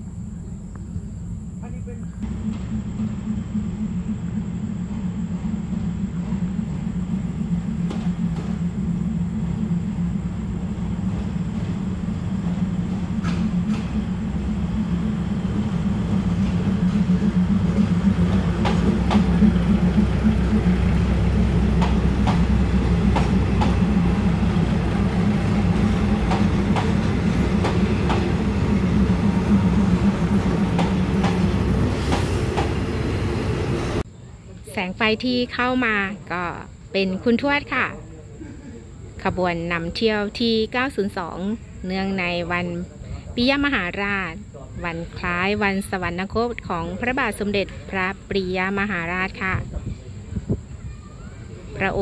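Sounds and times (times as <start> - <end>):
train low drone: 0.0 - 52.0.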